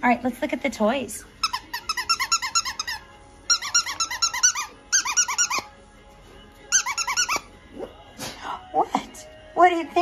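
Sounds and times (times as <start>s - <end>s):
squeaky dog toy squeaking: 1.4s - 5.8s, 6.7s - 7.6s.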